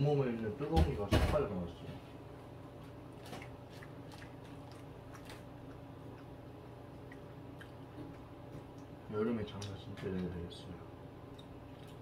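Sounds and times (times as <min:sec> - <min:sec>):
steady low hum: 0:00.0 - 0:12.0
faint chewing: 0:02.8 - 0:10.5, 0:11.2 - 0:12.0.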